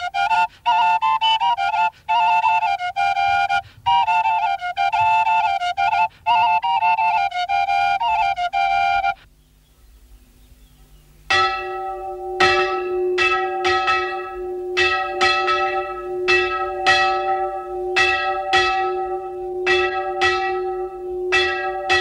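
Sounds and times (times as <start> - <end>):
church bell ringing: 11.3 - 22.0.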